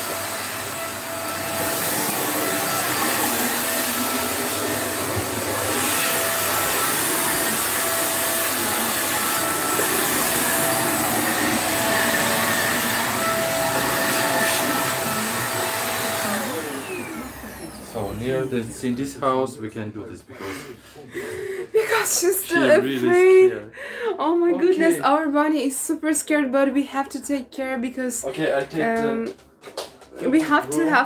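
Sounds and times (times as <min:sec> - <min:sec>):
vacuum cleaner motor whine: 0:00.0 - 0:19.3.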